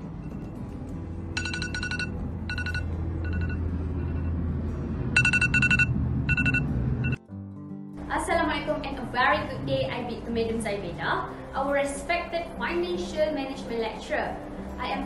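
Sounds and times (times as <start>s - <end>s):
background music with bass: 0.0s - 15.0s
phone ringtone trilling: 1.4s - 4.4s, 5.2s - 7.2s.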